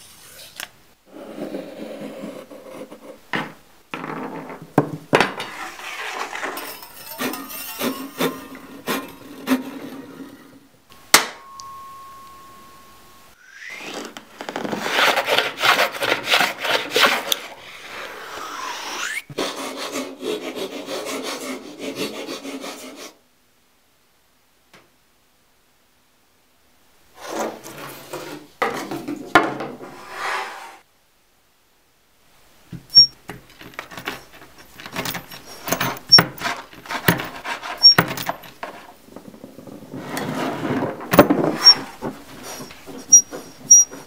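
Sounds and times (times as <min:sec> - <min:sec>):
hand plane shaving wood: 0:05.4 - 0:10.2, 0:13.7 - 0:18.7, 0:19.3 - 0:23.2, 0:34.1 - 0:38.9
rasping strokes on wood: 0:05.4 - 0:10.3, 0:14.7 - 0:23.2, 0:34.1 - 0:38.9
steady ringing tone: 0:11.0 - 0:13.8.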